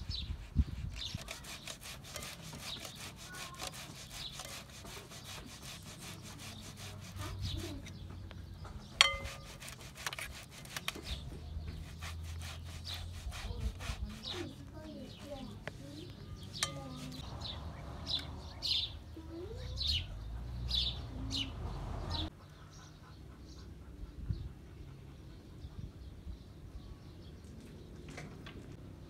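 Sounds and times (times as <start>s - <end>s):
potatoes rasping on grater: 0.8s - 7.9s, 9.0s - 17.2s
metal clink: 9.0s - 9.5s, 16.6s - 17.0s.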